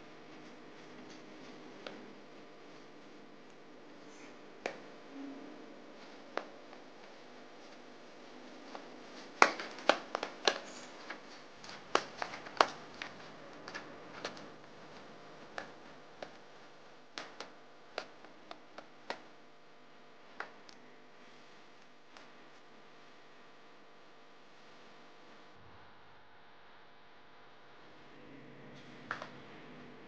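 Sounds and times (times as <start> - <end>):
dough kneaded in a bowl: 0.0 - 22.9.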